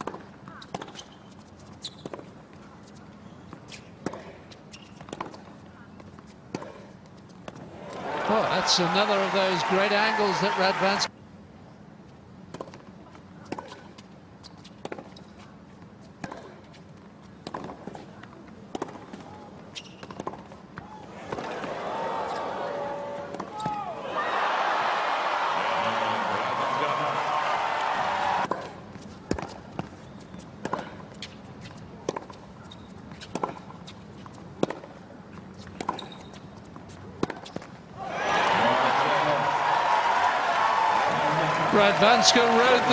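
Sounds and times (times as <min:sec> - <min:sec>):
tennis ball bouncing on court: 0:00.0 - 0:07.7, 0:12.5 - 0:15.4, 0:16.2 - 0:22.4, 0:23.2 - 0:23.9, 0:28.4 - 0:37.7
low crowd hum: 0:05.4 - 0:11.9, 0:20.4 - 0:35.8, 0:36.8 - 0:42.9
crowd applause: 0:07.8 - 0:11.1, 0:24.0 - 0:28.5, 0:38.0 - 0:42.9
footsteps on court: 0:40.4 - 0:42.9.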